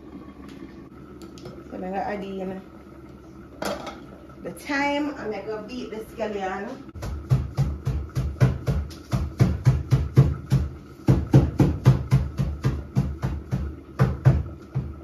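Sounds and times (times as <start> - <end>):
hard thuds of pounding herbs: 7.0 - 15.0.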